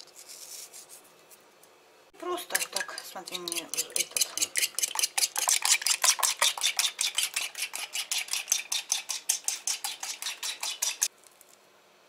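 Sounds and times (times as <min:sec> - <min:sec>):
fork beating eggs in ceramic bowl: 0:02.2 - 0:11.1.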